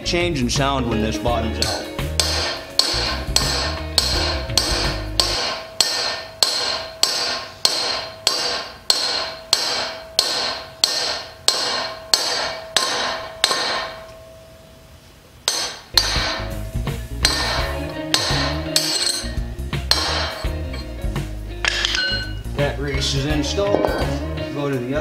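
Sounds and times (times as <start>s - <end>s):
hammer blows on metal: 1.6s - 14.2s, 15.5s - 20.9s.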